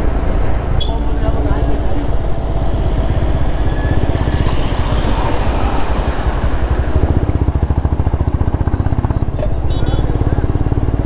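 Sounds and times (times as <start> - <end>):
motorcycle engine at low revs: 5.9 - 11.0.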